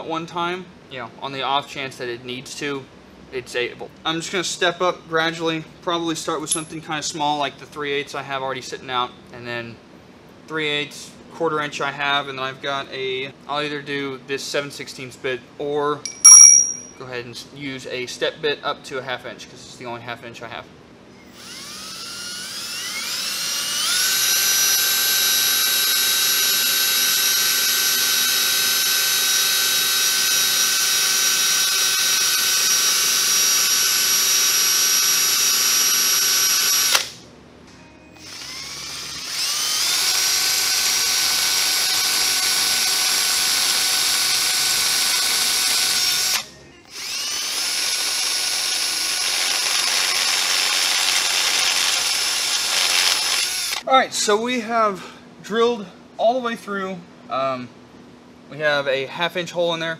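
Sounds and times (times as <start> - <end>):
cordless drill whining: 21.2 - 37.2, 38.1 - 53.8.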